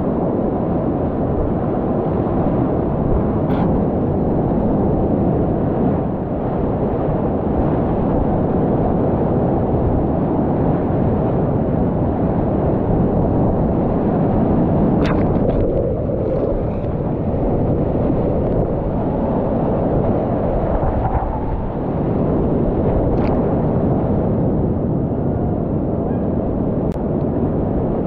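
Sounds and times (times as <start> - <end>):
roar of river rapid: 3.4 - 3.9, 14.1 - 22.0
sharp water splashes: 15.0 - 16.9.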